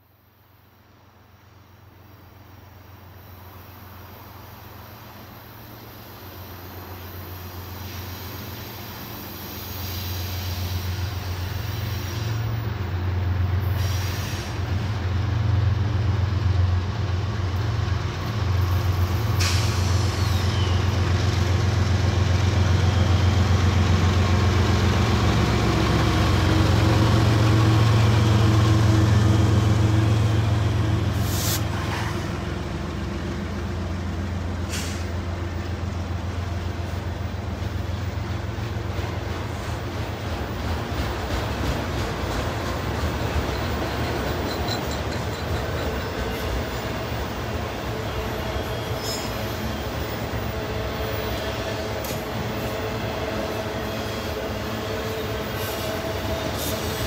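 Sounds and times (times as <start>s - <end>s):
diesel locomotive engines rumbling: 0.2s - 57.0s
freight cars wheels on rails: 36.8s - 57.0s.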